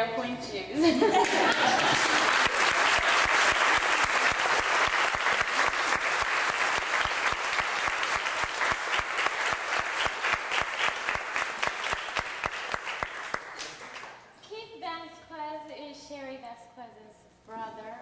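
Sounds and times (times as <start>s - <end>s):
audience applauding: 1.2s - 14.2s.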